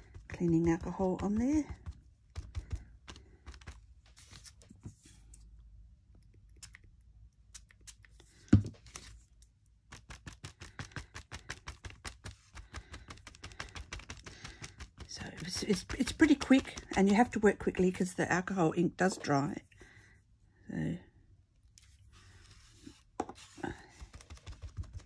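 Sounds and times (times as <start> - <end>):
foam pad tapping on paper: 0.0 - 3.8, 9.9 - 17.4, 23.2 - 25.0.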